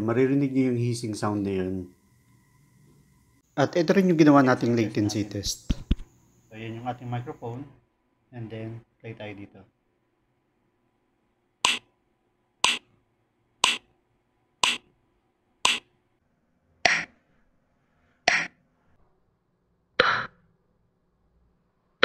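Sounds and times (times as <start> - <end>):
sharp test clicks from speaker: 11.6 - 11.9, 12.6 - 12.9, 13.6 - 13.9, 14.6 - 14.9, 15.7 - 15.9.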